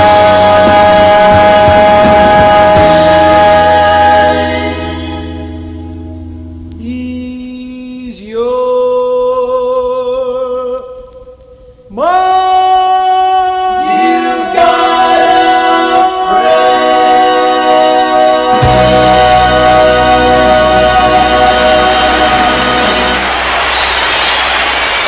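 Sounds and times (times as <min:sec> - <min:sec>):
male vocal group singing harmony: 0:00.0 - 0:05.5, 0:12.0 - 0:23.4.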